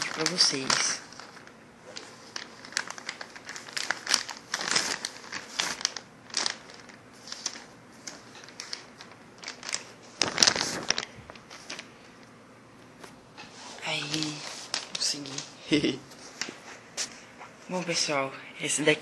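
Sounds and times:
plastic envelope crinkling: 0.0 - 13.2, 13.8 - 16.8.

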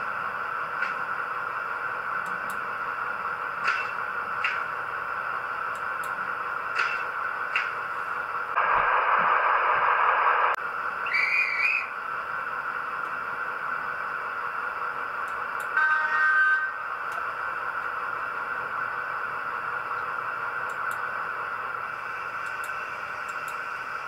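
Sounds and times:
diesel locomotive idling hum: 0.0 - 24.0
noisy burst: 0.0 - 24.0
short whistle tones: 11.0 - 11.9.

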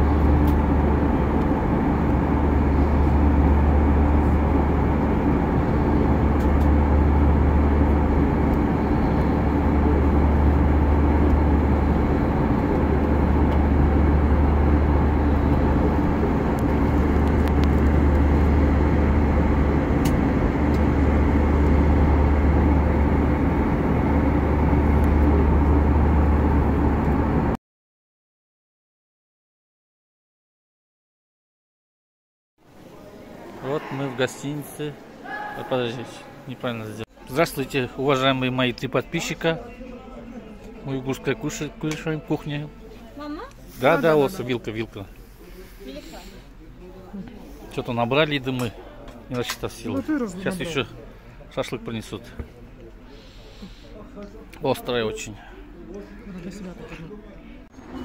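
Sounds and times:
jet engine low hum: 0.0 - 27.6.

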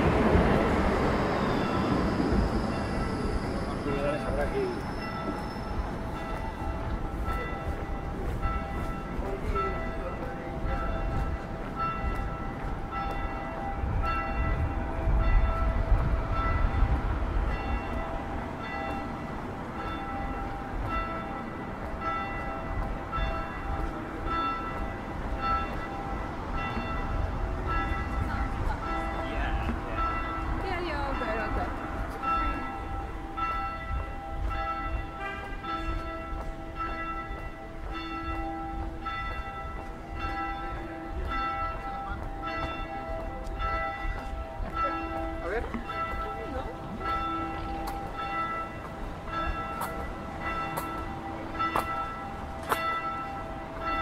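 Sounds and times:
church bells ringing: 0.0 - 54.0.

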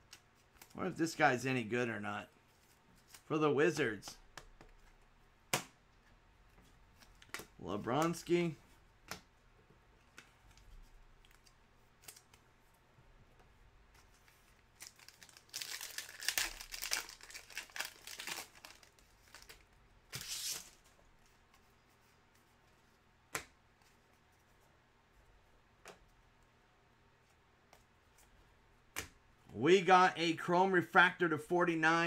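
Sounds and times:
foil pack ripping and crinkling: 14.8 - 19.5.

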